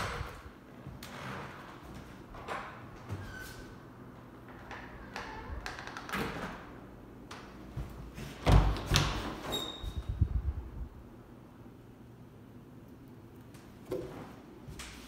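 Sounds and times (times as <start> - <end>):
door squeak: 3.1 - 3.8, 4.8 - 6.5, 9.4 - 10.1.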